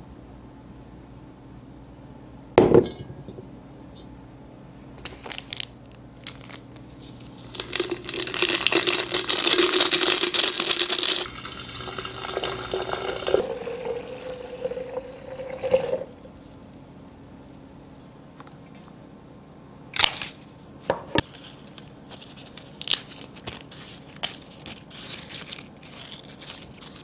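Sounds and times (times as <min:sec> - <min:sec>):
sachet crinkling and tearing: 0:05.0 - 0:11.4, 0:21.2 - 0:27.0
powder shaken into glass vase: 0:07.5 - 0:11.3
water pouring into vase: 0:07.5 - 0:16.2.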